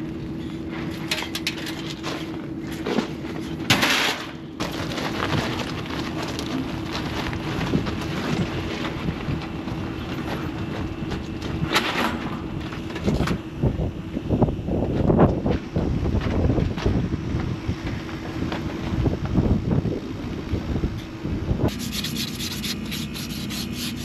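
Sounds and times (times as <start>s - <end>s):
wind noise on microphone: 7.4s - 24.0s.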